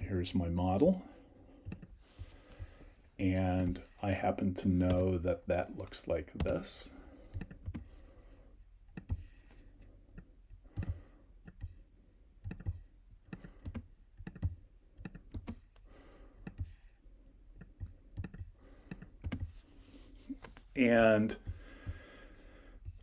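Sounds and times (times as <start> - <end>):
computer mouse clicks: 10.2 - 11.8, 12.4 - 16.9, 17.5 - 19.6.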